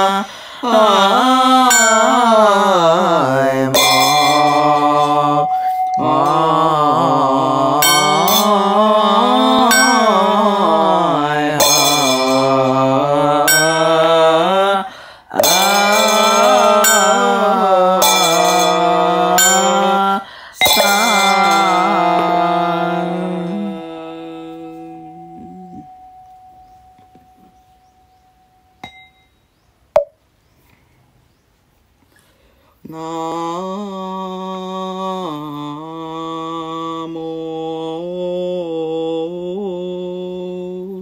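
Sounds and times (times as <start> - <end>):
slow sung chanting: 0.0 - 29.8, 30.4 - 41.0
ringing percussion strikes: 1.6 - 14.5, 15.4 - 23.9, 24.5 - 29.5.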